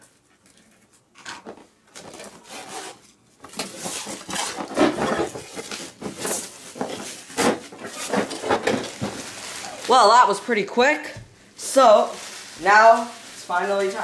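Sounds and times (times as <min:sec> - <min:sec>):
plastic shrink wrap tearing: 0:01.9 - 0:10.5, 0:11.6 - 0:14.0.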